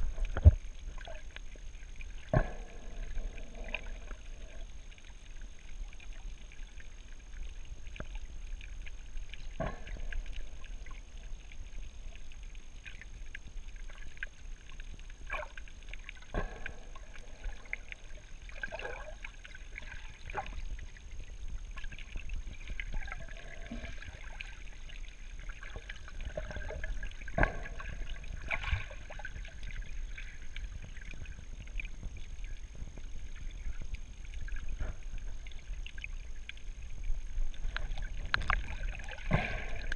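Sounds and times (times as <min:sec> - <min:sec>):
underwater clicks and knocks: 0:00.0 - 0:06.4, 0:07.3 - 0:39.9
muffled underwater rumble: 0:00.0 - 0:39.9.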